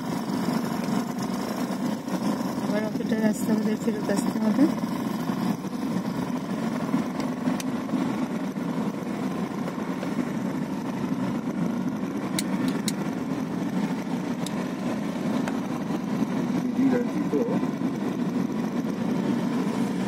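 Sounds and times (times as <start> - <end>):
vehicle engine and road noise: 0.0 - 20.0.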